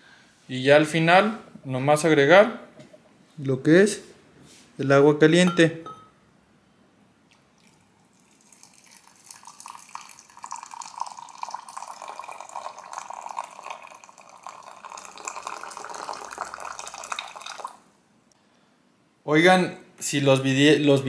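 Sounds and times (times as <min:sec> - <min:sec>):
hot water pouring into a mug: 0:07.3 - 0:17.9.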